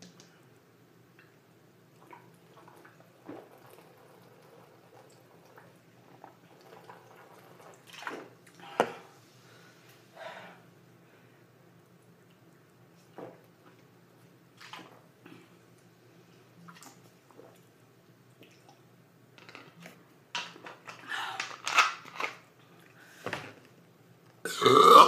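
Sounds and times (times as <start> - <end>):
loud burp: 24.4 - 25.0
person gulping soda: 24.5 - 25.0.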